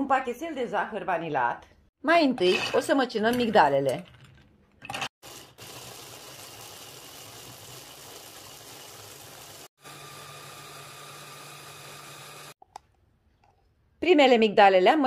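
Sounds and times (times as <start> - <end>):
mini chopper grinding almonds: 5.2 - 12.6.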